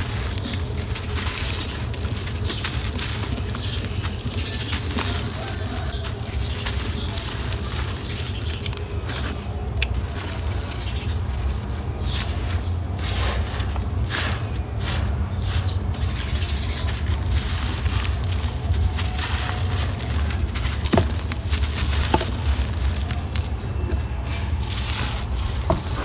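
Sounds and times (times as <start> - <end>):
grains and stones pattering: 0.0 - 26.0
soil crunching in hands: 0.0 - 26.0.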